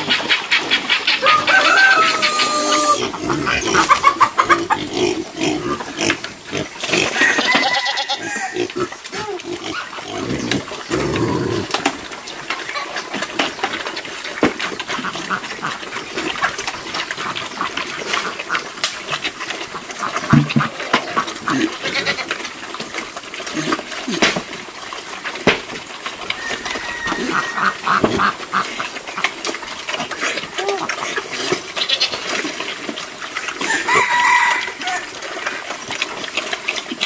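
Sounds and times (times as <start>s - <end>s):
ducks quacking: 0.0s - 11.7s, 14.9s - 18.8s, 26.4s - 29.4s
pigs chomping: 0.0s - 37.0s
pigs grunting: 0.0s - 37.0s.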